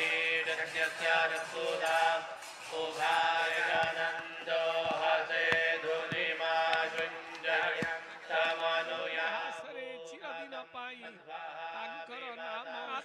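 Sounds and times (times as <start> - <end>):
group chanting: 0.0 - 13.0.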